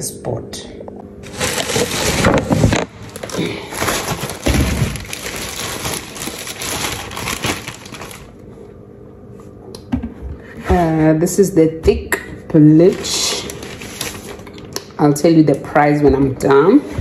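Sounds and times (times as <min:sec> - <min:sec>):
packaging rustling and crackling: 0:01.2 - 0:08.4, 0:12.8 - 0:14.7.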